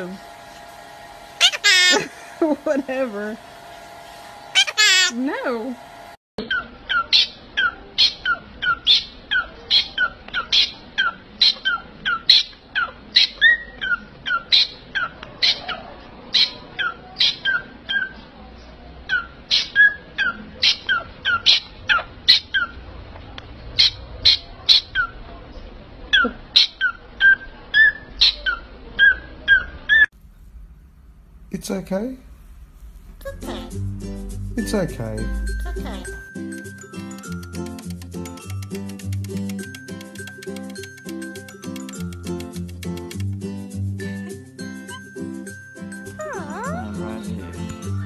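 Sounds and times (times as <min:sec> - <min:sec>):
parrot calling sharply: 0:01.4 - 0:02.1, 0:04.5 - 0:05.2.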